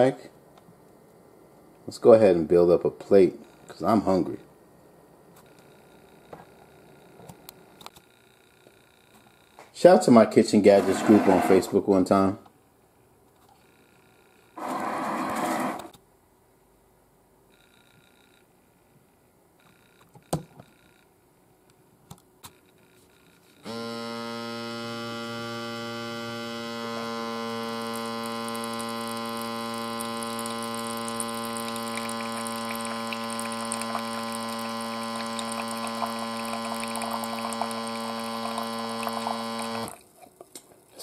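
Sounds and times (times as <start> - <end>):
pump motor humming: 10.7 - 11.7, 23.6 - 40.1.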